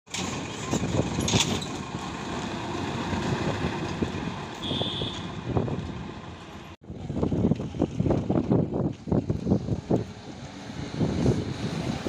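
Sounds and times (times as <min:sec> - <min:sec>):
bus engine driving past: 0:00.1 - 0:08.0.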